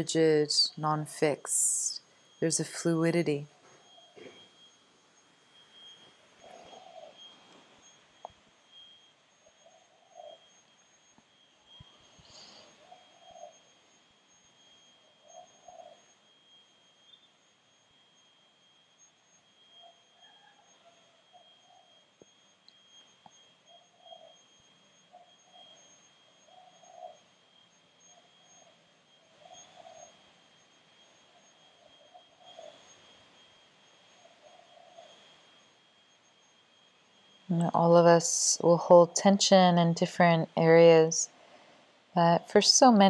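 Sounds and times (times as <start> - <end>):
high-pitched whine: 0.0 - 43.0.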